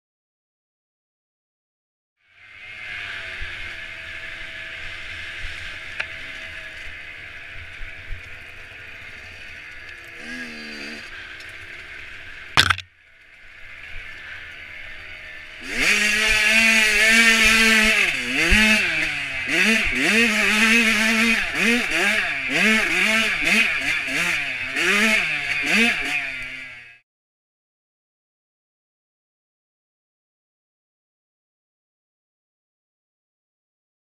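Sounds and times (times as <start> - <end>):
dirt bike engine revving: 2.5 - 12.9, 14.7 - 27.0
sharp click: 12.6 - 12.9.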